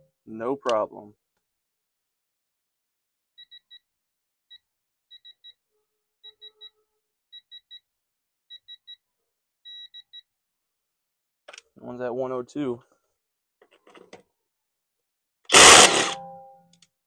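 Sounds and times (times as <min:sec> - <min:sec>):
long beep: 0:15.5 - 0:16.6
short high beeps: 0:15.5 - 0:16.6.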